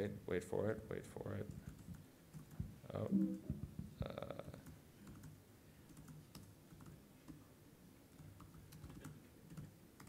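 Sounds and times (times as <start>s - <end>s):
typing on laptop keyboard: 1.5s - 2.6s, 4.6s - 7.4s, 8.1s - 10.0s.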